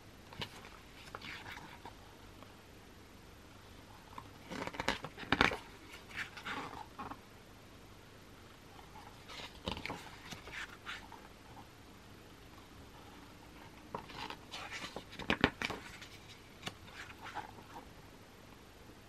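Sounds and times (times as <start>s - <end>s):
album pages rustling: 0.3s - 2.0s, 4.0s - 7.2s, 8.8s - 11.7s, 12.9s - 17.9s.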